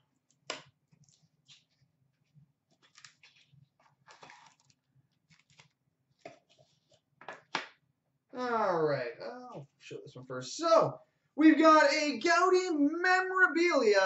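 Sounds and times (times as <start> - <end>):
packaging rustling and scraping: 1.1 - 7.0.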